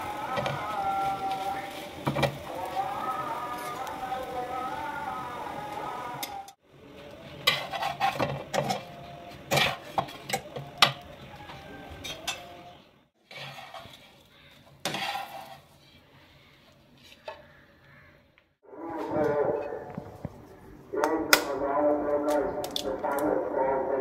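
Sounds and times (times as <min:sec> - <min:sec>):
metal spatula scraping frying pan: 0:07.4 - 0:11.0, 0:13.2 - 0:15.9.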